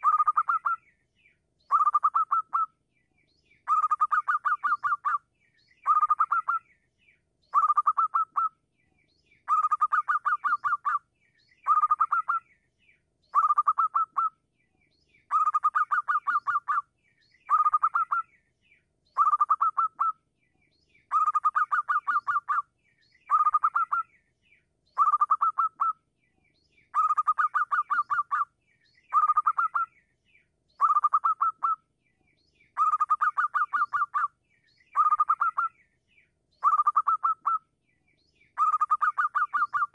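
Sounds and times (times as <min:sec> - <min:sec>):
dove cooing: 0:38.6 - 0:39.9.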